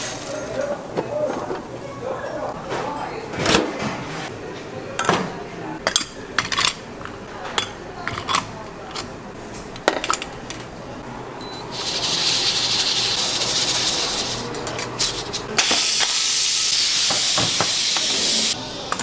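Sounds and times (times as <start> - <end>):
high hissing sizzle: 11.7 - 18.6.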